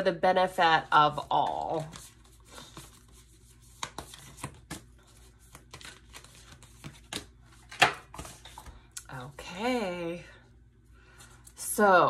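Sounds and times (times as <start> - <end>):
cards being shuffled: 1.2 - 9.0.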